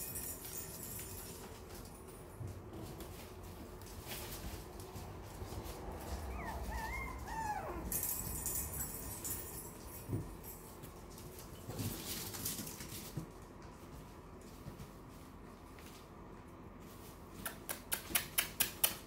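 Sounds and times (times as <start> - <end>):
small paws on hard floor: 0.1 - 18.4
puppies whining: 5.9 - 9.2.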